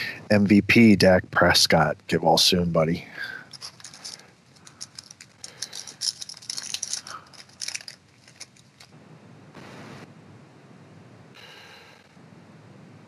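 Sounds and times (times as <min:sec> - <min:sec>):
foil wrapper crinkling: 0:03.5 - 0:08.9
wrapper rustling: 0:03.5 - 0:08.9.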